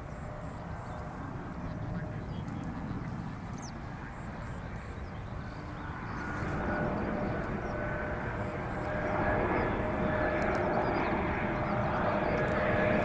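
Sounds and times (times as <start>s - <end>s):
jet engines rumbling with whine: 0.0s - 13.0s.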